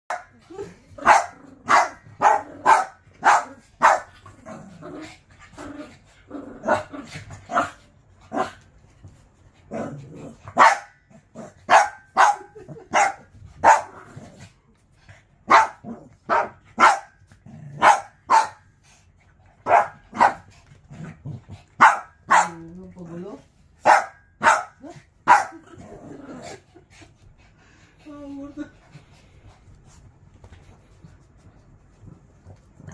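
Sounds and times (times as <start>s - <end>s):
small dogs barking: 1.0s - 4.1s, 10.6s - 11.0s, 11.6s - 14.0s, 15.5s - 17.2s, 17.8s - 18.6s, 19.6s - 20.5s, 21.8s - 22.6s, 23.8s - 25.6s.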